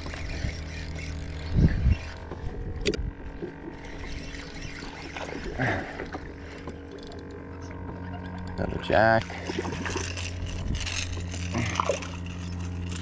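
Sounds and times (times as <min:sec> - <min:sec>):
spinning reel being cranked: 0:00.0 - 0:02.9, 0:03.6 - 0:13.0
steady low hum: 0:00.0 - 0:13.0.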